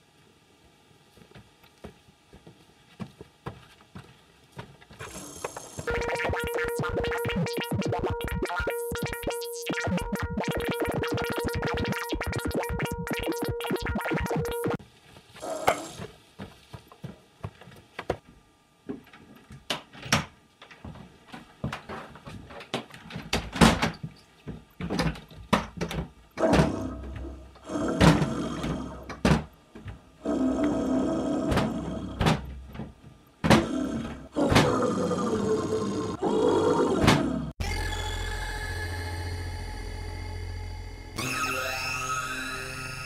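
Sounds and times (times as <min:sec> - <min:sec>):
droning musical tone: 0:37.6 - 0:43.0.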